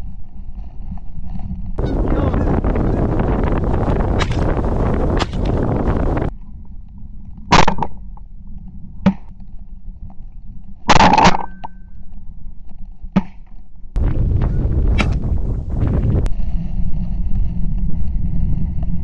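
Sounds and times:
steady rushing noise: 0:01.8 - 0:06.3, 0:14.0 - 0:19.0
shotgun shots: 0:14.9 - 0:15.2.

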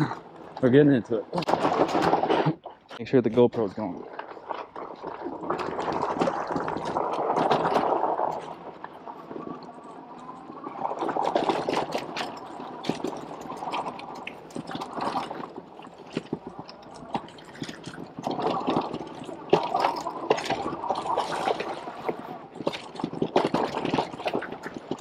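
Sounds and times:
knobby tyres crunching over dirt: 0:00.0 - 0:25.0
bike clicks and rattles: 0:00.5 - 0:25.0.

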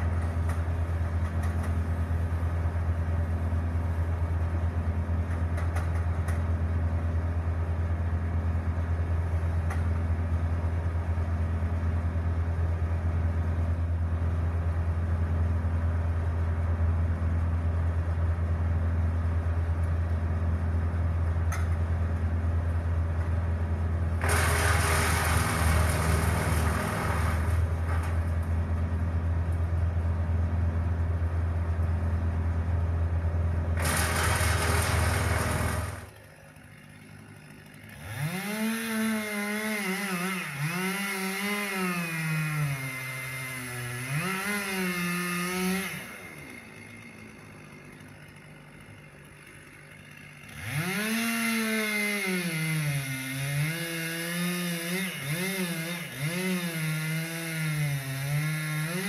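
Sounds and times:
wood chipper engine running: 0:00.0 - 0:59.0
chainsaw revving: 0:24.2 - 0:28.2, 0:33.8 - 0:59.0.

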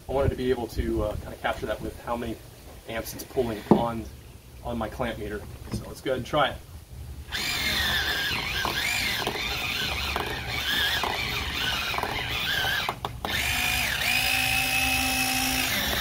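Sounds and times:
electric pencil sharpener grinding: 0:07.3 - 0:16.0.

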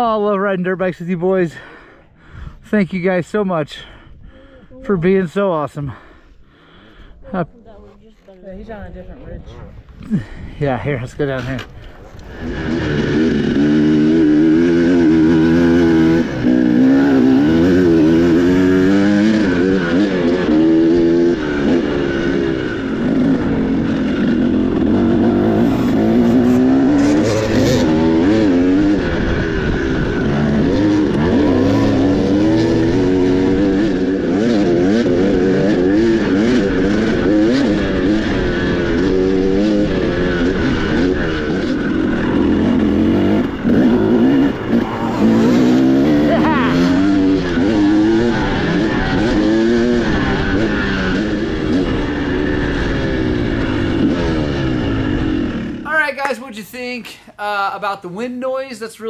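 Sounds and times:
dirt bike engine revving: 0:11.2 - 0:56.2.

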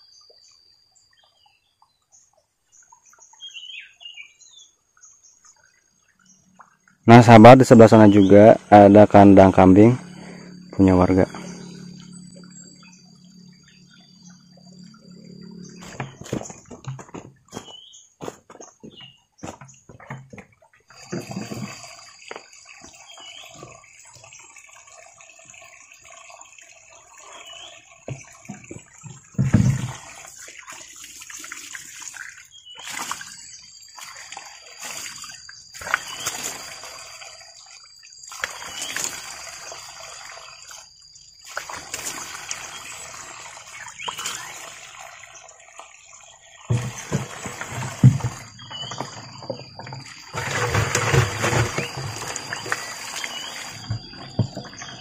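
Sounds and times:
water splashing and pouring: 0:05.4 - 0:55.0
steady high whine: 0:07.2 - 0:16.6.

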